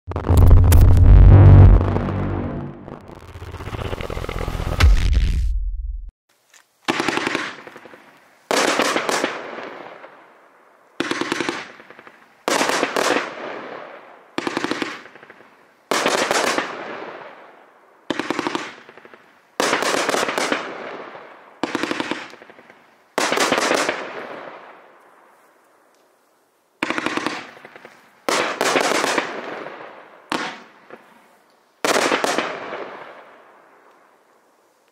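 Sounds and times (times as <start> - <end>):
fireworks bursts: 0.1 - 5.4.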